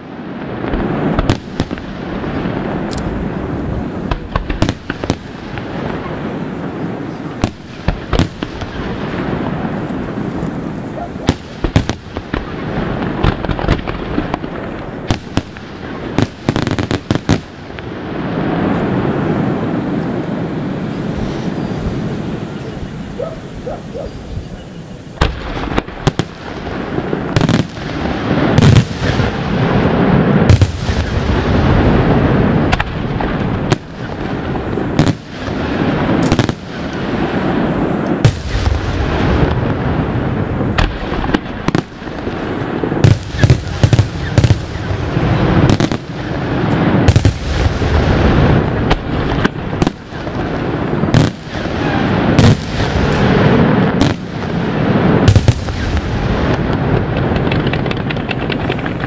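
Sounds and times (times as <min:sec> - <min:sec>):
firework shells bursting: 0:40.5 - 0:54.4, 0:55.0 - 0:59.0.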